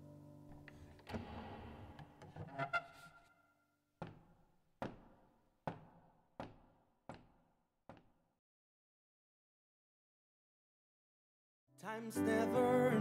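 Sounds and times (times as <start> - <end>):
piano bench creaking and clicking: 0.5 - 3.0
footsteps on wooden stage floor: 4.0 - 8.2.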